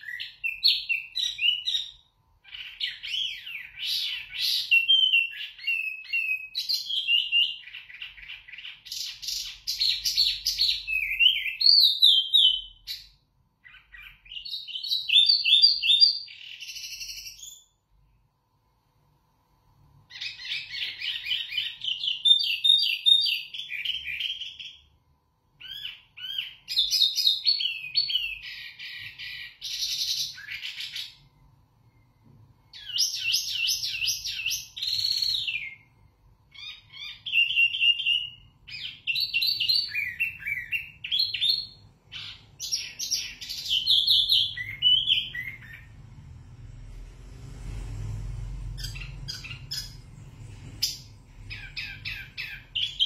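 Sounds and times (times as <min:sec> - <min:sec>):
songbird whistles and trills: 0:00.0 - 0:17.7, 0:36.5 - 0:45.9.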